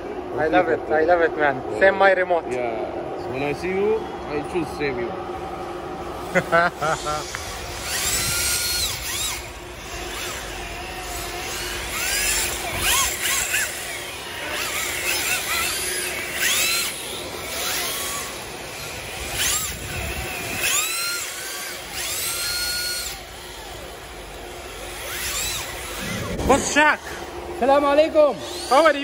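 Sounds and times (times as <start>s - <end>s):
rc car motors whining: 0.0s - 29.0s.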